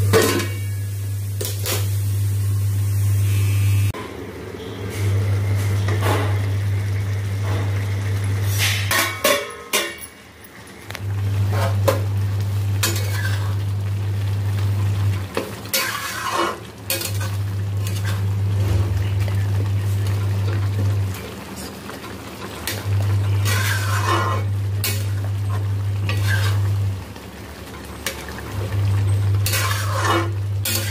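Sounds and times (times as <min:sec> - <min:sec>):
spatula scraping and tapping pan: 0:15.4 - 0:18.9, 0:22.7 - 0:25.3, 0:26.0 - 0:26.7, 0:29.4 - 0:30.9.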